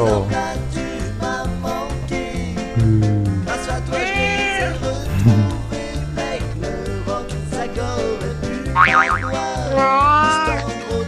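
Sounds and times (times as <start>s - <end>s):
wobbling boing cartoon effect: 2.8s - 3.6s, 8.8s - 10.5s
rising slide effect: 2.8s - 3.7s
upbeat music with bass beat: 2.8s - 3.7s, 5.0s - 5.6s.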